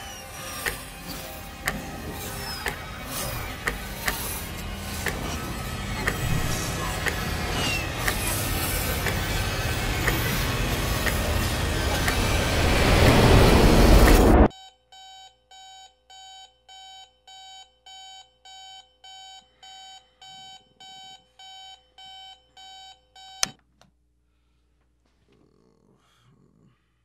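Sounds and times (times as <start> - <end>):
rising rush of noise: 9.9 - 14.5
alarm clock beeping: 14.5 - 23.5.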